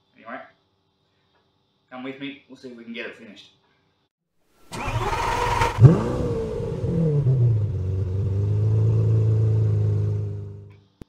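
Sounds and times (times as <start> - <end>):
engine revving and idling: 4.8 - 10.7.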